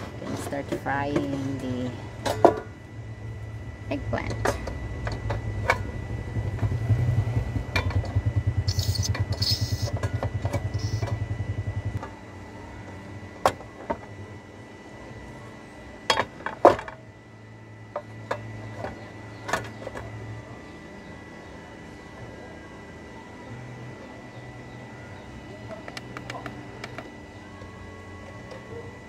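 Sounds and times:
pulsing low hum: 0.0 - 16.1.

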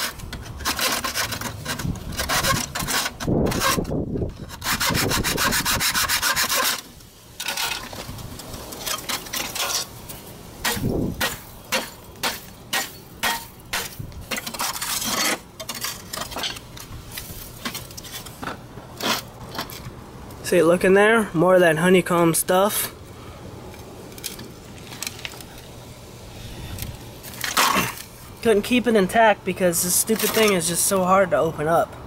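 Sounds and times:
hacksaw cutting metal: 0.0 - 8.0, 8.8 - 9.9, 10.6 - 16.6
torn metal scraping and rattling: 0.0 - 20.5.

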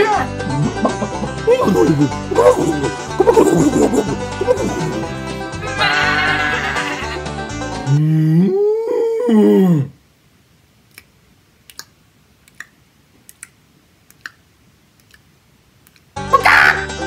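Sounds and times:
man imitating farm animal: 0.0 - 7.2, 16.2 - 17.0
loud banjo music: 0.2 - 7.9
mouth clicks and lip pops: 10.8 - 16.2.

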